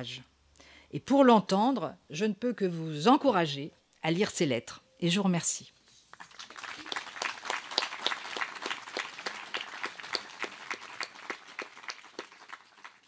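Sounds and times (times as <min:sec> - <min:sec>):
audience applauding: 0:06.2 - 0:13.0.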